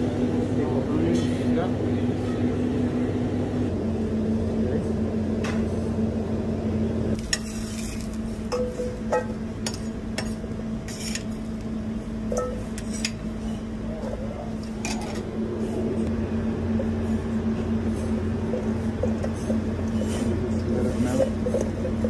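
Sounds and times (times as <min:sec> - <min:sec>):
low steady hum: 0:00.0 - 0:22.0
spatula scraping griddle: 0:07.2 - 0:11.5, 0:12.4 - 0:13.7, 0:19.2 - 0:22.0.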